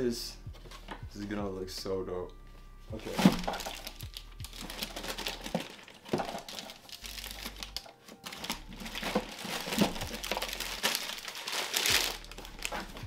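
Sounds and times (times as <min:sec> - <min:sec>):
plastic bag crinkling: 0:03.0 - 0:13.0.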